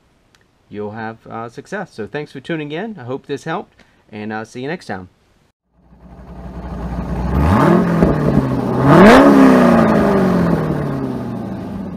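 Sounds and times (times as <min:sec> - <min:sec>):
car engine revving: 0:05.8 - 0:11.9.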